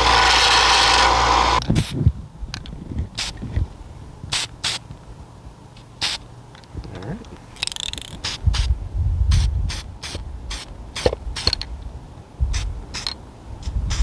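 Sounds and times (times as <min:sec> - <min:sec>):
aerosol spray can hissing: 0:06.0 - 0:06.2, 0:07.7 - 0:08.7, 0:12.6 - 0:14.0.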